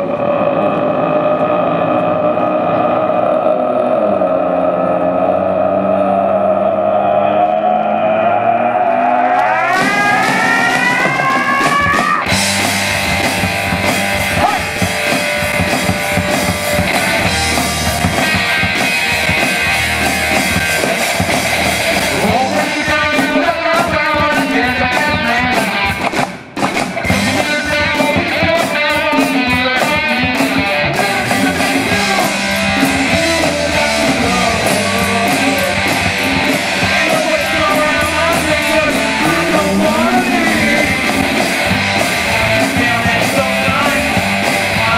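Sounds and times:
bass: 0:00.0 - 0:44.9
electric guitars: 0:00.0 - 0:44.9
drum kit: 0:09.4 - 0:44.9.

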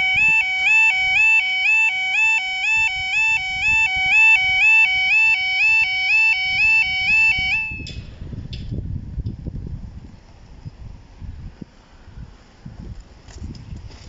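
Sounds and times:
two-tone crossing alarm: 0:00.0 - 0:08.0.

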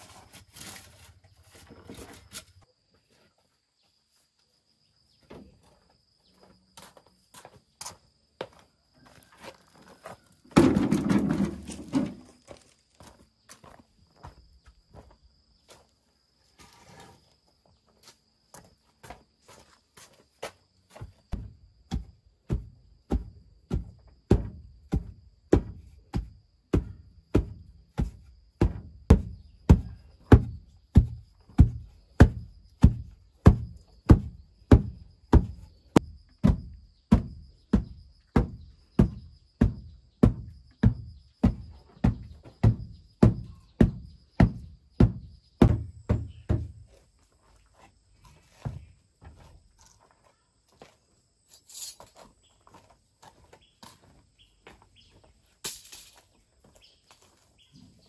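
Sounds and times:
heavy dull pounding blows: 0:36.4 - 0:46.9.

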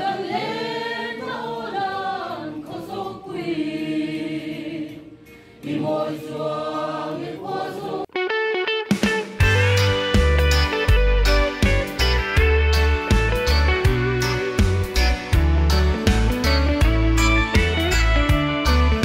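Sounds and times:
mixed choir singing: 0:00.0 - 0:08.1.

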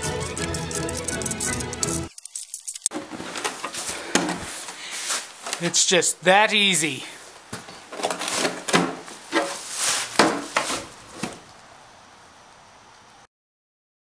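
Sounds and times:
short scuffs and rustles: 0:03.0 - 0:05.8, 0:07.2 - 0:11.5
faint hiss: 0:04.4 - 0:07.4.

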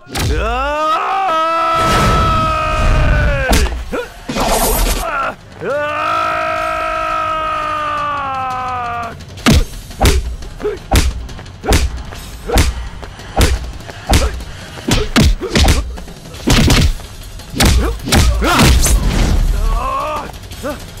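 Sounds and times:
background music: 0:00.0 - 0:21.0
punch and kick hits: 0:09.4 - 0:12.8, 0:13.4 - 0:19.0.

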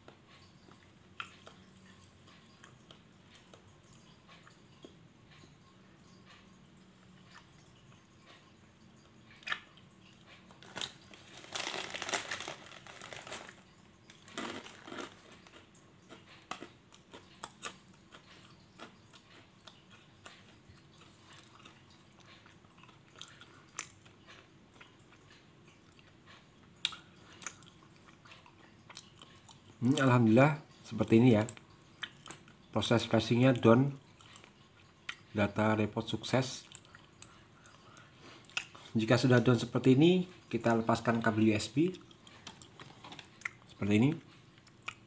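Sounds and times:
person chewing crunchy snack: 0:00.7 - 0:03.7, 0:09.3 - 0:26.2, 0:26.8 - 0:30.1, 0:34.1 - 0:35.3, 0:36.6 - 0:39.0, 0:41.9 - 0:45.0.

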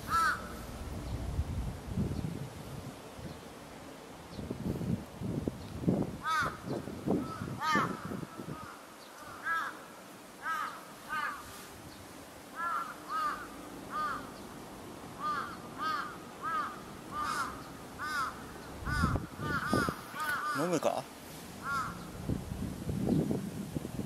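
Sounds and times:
crow cawing: 0:00.0 - 0:00.6, 0:06.2 - 0:11.5, 0:12.6 - 0:14.4, 0:15.2 - 0:20.8, 0:21.6 - 0:22.1.

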